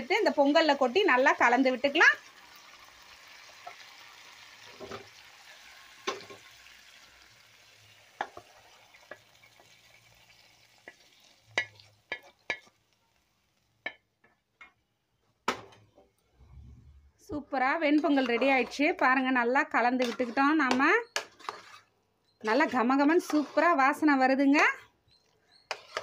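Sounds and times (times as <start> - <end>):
spices sizzling in a pan: 0.0 - 14.5
spatula tapping cooking pot: 13.8 - 14.8, 20.0 - 21.7.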